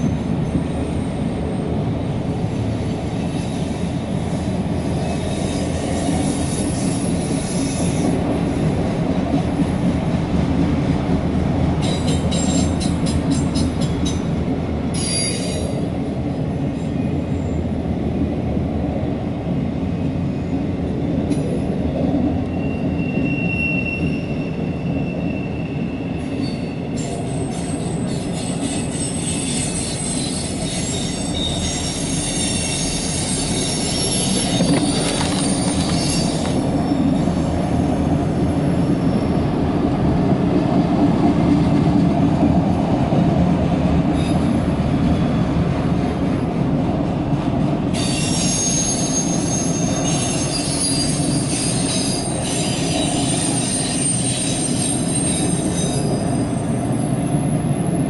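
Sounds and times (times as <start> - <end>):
freight train wheels rumbling: 0.0 - 58.0
faint wheel squeal: 22.6 - 37.0, 48.0 - 56.3.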